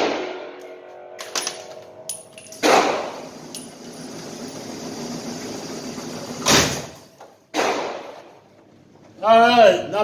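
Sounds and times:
target carrier mechanical hum: 0:00.4 - 0:07.5.

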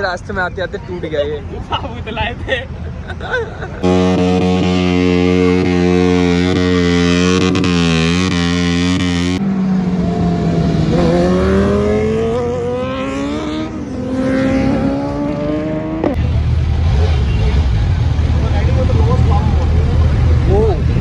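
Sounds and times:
motorcycle engine revving during burnout: 0:03.8 - 0:17.9
motorcycles accelerating away: 0:03.8 - 0:21.0.

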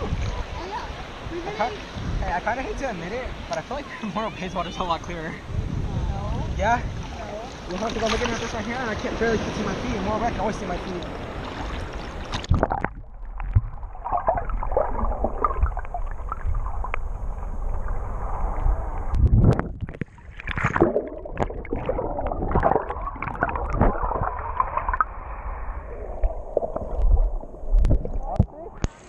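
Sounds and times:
muffled water sloshing and gurgling: 0:06.9 - 0:29.0.

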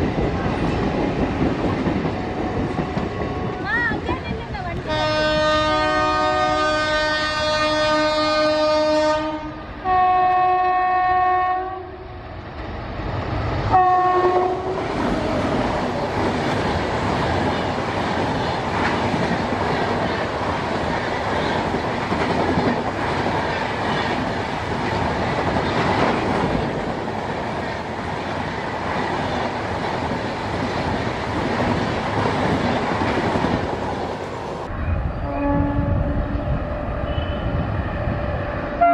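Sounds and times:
train wheels rumbling on rails: 0:00.0 - 0:38.9
locomotive horn blasts: 0:04.9 - 0:12.0, 0:13.7 - 0:14.8, 0:35.2 - 0:37.5.

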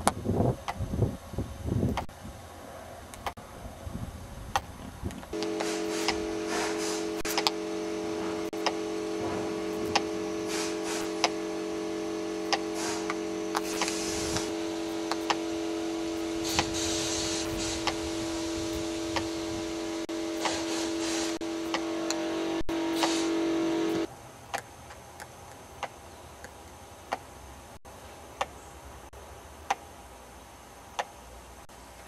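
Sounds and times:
steady low hum: 0:00.0 - 0:24.1
sharp clicks and ticks: 0:07.2 - 0:07.6, 0:12.4 - 0:14.5.

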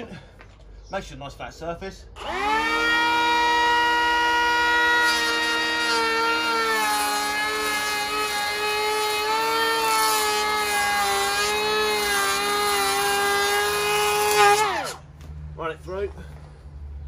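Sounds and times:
electric planer whine: 0:02.2 - 0:15.0.

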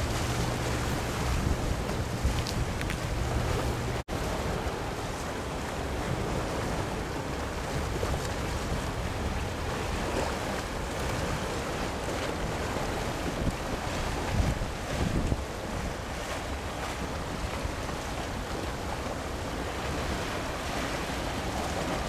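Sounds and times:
low hum: 0:00.0 - 0:04.0
choppy sea water: 0:00.0 - 0:22.0
wind on microphone: 0:00.0 - 0:22.0.

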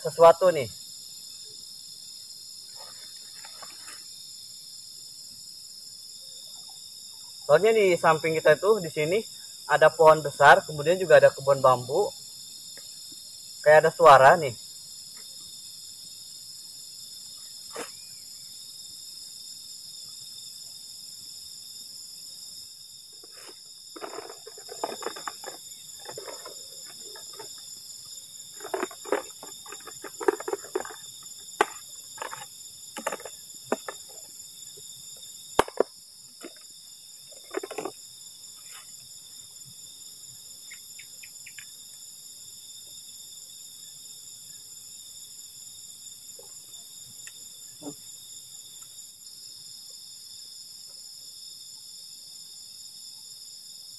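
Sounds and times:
crickets and insects trilling: 0:00.0 - 0:53.9
rustling and handling noises: 0:23.2 - 0:27.7, 0:28.5 - 0:34.3.

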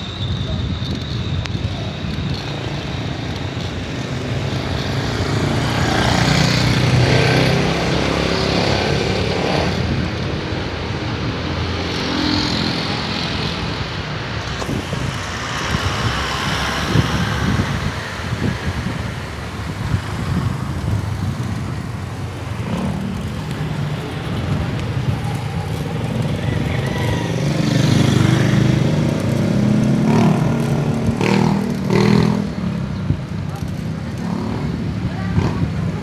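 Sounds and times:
road traffic: 0:00.0 - 0:36.0
wind on microphone: 0:12.7 - 0:36.0.

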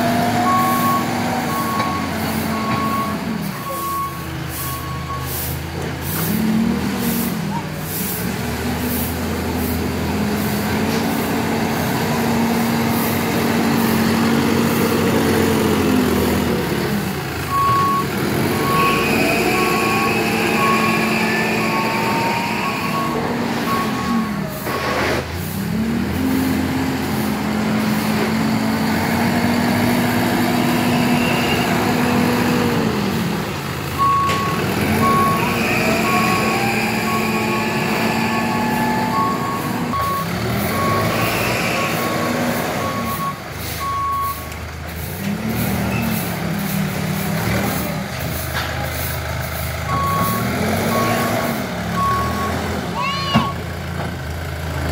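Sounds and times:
diesel engine revving: 0:00.0 - 0:54.9
reversing alarm beeps: 0:00.4 - 0:05.4, 0:17.5 - 0:24.4, 0:34.0 - 0:44.5, 0:49.9 - 0:52.6.

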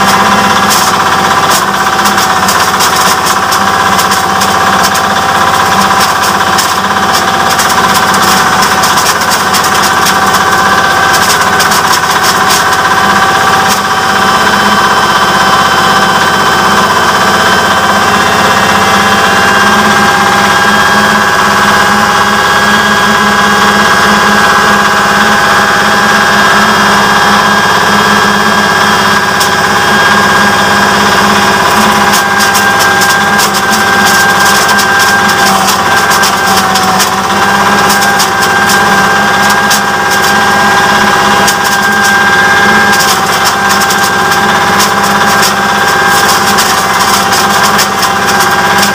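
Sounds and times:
corn cobs crackling in mill: 0:00.0 - 0:48.9
mill engine high whine: 0:00.0 - 0:48.9.

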